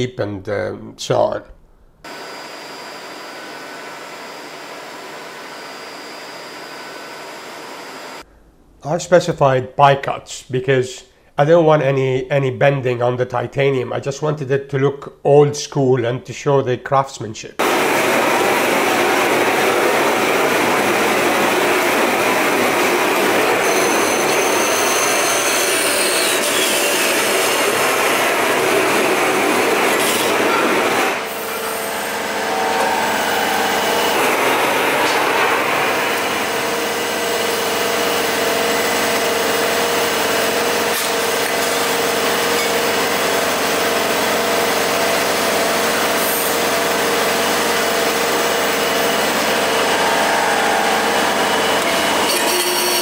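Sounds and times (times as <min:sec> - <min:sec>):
bandsaw cutting metal tube: 0:17.6 - 0:53.0.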